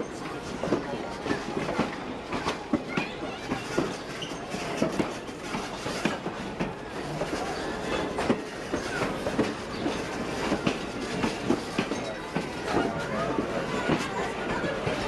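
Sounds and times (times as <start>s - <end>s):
train wheels rumbling on rails: 0.0s - 15.0s
wheels clicking over rail joints: 0.0s - 15.0s.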